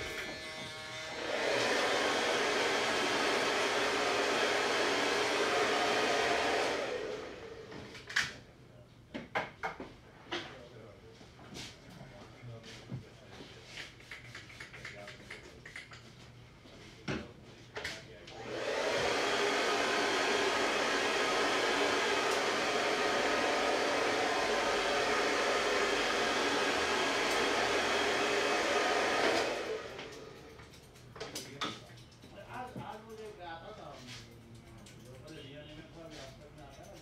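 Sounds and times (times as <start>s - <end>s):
hair dryer blowing: 0.0s - 8.0s, 18.3s - 30.4s.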